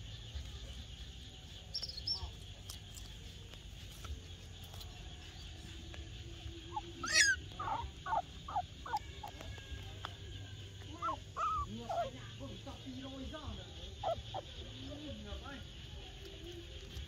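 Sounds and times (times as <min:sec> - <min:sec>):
short chirping calls: 0:06.6 - 0:09.3, 0:10.8 - 0:15.2
animal squeal: 0:06.7 - 0:09.4, 0:11.0 - 0:12.2.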